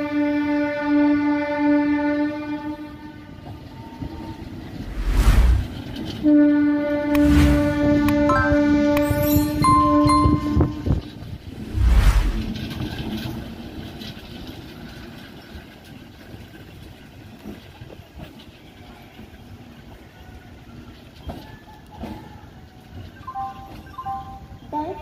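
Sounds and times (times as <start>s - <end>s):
train wheels rumbling: 3.2s - 25.0s
wind gust on microphone: 4.6s - 6.0s, 7.1s - 13.1s.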